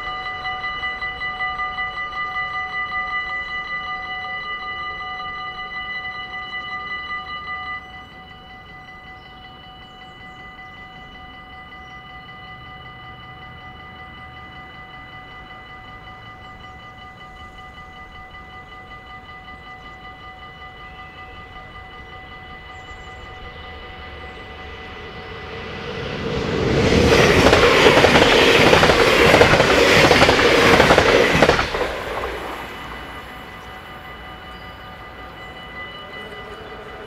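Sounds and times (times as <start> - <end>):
approaching train rumble: 0.0 - 37.0
level crossing warning bells: 0.0 - 37.0.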